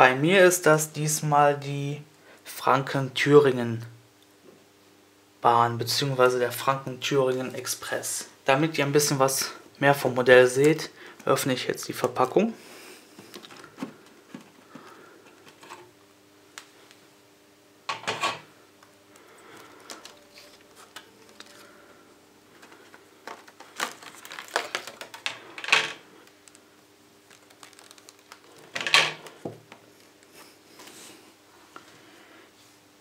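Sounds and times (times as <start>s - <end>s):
plastic packaging crackling: 13.2s - 15.7s, 19.1s - 21.8s, 22.5s - 29.8s.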